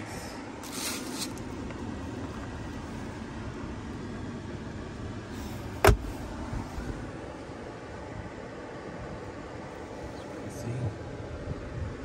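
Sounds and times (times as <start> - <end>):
car cabin hum: 0.0 - 12.0.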